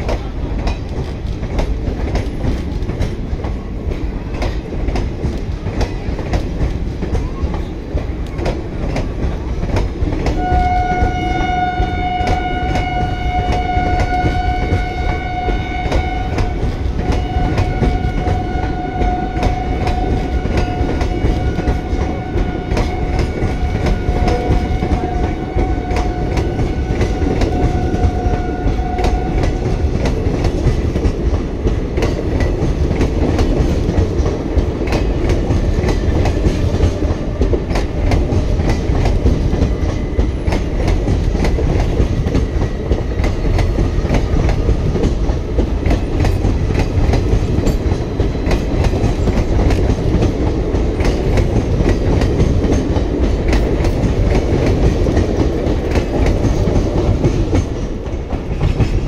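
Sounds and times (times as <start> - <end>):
train coaches rumbling past: 0.0 - 59.0
train horn: 10.2 - 30.0.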